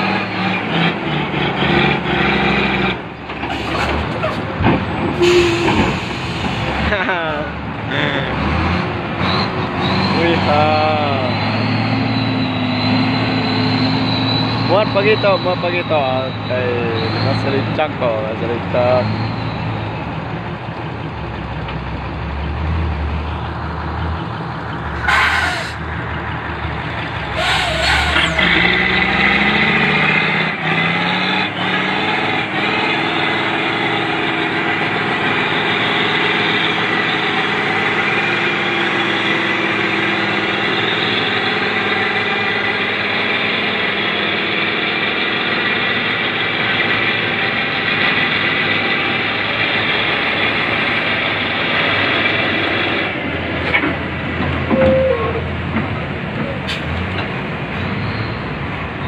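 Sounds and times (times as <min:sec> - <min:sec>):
heavy diesel truck engine: 0:00.0 - 0:59.0
short sharp air hisses: 0:25.0 - 0:25.8, 0:27.4 - 0:28.2.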